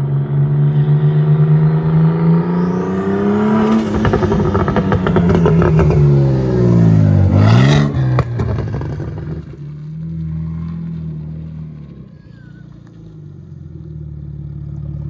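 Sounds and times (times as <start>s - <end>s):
car engine driving past: 0.0s - 15.0s
exhaust pops and crackles: 7.9s - 13.2s.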